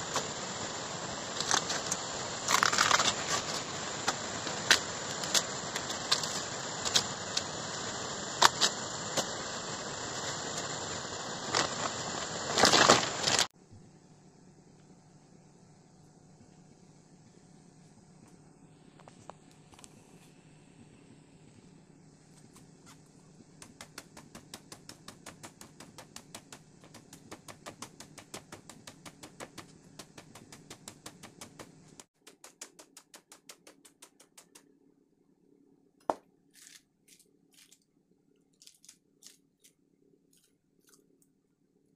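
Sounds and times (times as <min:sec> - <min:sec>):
dry bamboo litter crackling: 0:01.2 - 0:07.4, 0:11.4 - 0:13.5, 0:36.5 - 0:37.8, 0:38.6 - 0:39.7
low steady hum: 0:13.6 - 0:41.9.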